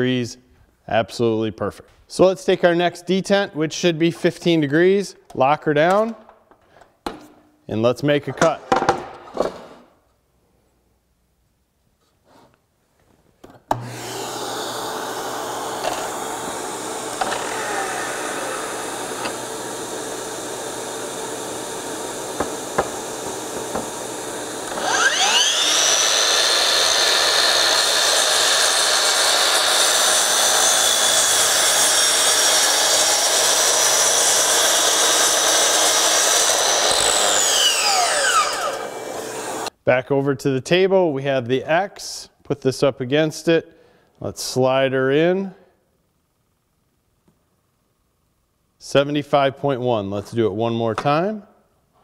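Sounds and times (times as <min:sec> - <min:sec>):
miter saw cutting a board: 0:13.7 - 0:39.7.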